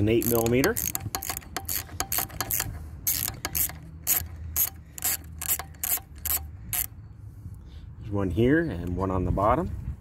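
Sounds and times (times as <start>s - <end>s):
ratchet wrench clicking: 0.0s - 7.0s.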